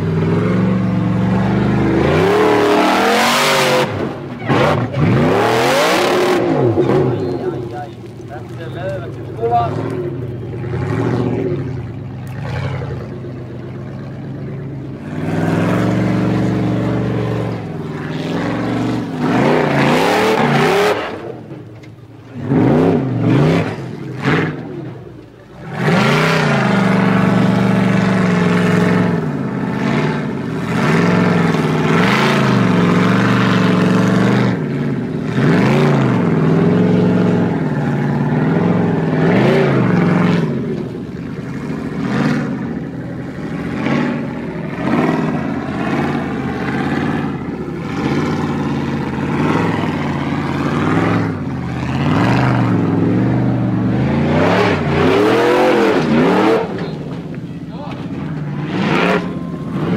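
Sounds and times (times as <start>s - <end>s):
buggy engine revving hard: 0.0s - 57.4s, 58.0s - 59.9s.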